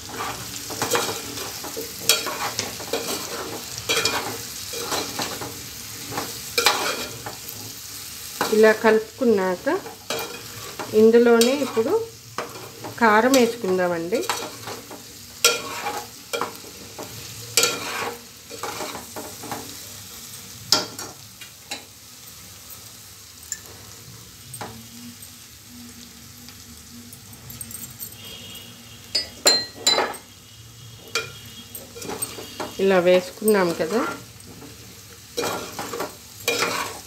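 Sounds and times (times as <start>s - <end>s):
curry sizzling: 0.0s - 37.0s
spoon scraping steel pot: 15.5s - 16.6s, 17.6s - 19.1s, 31.1s - 32.8s, 35.4s - 37.0s.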